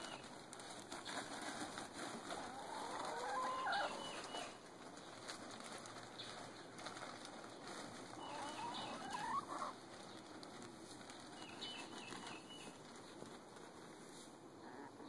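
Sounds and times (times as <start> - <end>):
hens clucking: 0.0 - 5.5, 6.2 - 11.0, 11.6 - 15.0.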